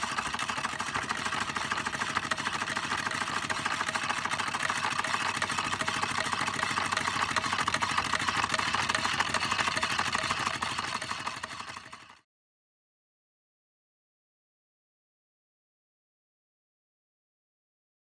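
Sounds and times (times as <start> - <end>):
toy engine mechanical clatter: 0.0 - 12.3.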